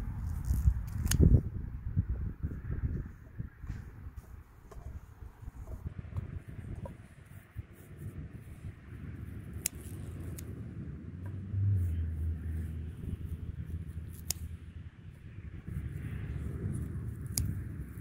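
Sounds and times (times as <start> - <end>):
steady low rumble: 0.0 - 18.0
scissors snipping stems: 0.1 - 1.4, 7.4 - 10.6, 11.3 - 14.8, 15.7 - 18.0.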